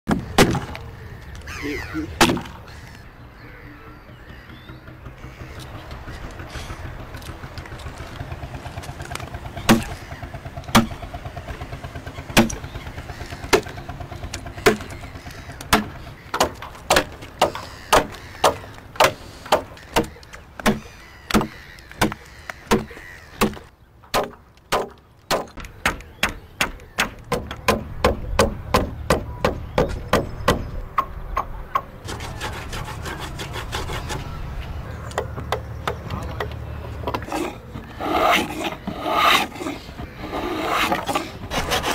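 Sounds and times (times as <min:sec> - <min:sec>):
axe chopping wood: 0:00.1 - 0:00.8, 0:02.2 - 0:02.6, 0:09.7 - 0:10.0, 0:10.7 - 0:11.0, 0:12.4 - 0:12.6, 0:14.6 - 0:14.9, 0:15.6 - 0:30.7.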